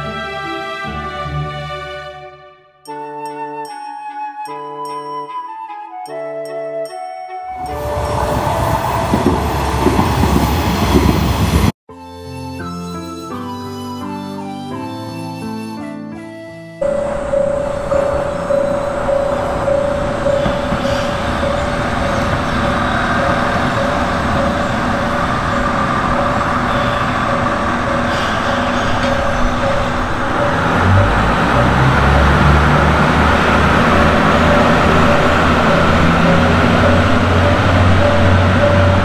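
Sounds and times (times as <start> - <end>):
train running noise: 7.6 - 11.8, 16.8 - 39.0
diesel engine humming: 16.8 - 39.0
repeating bell-like tone: 16.8 - 39.0.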